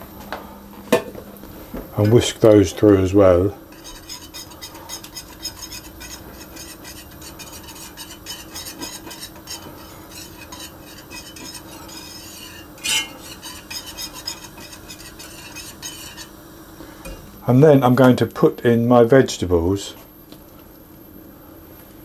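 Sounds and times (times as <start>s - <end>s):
whisk scraping in pan: 2.0s - 17.0s
whisk clinking on pan rim: 3.7s - 16.3s.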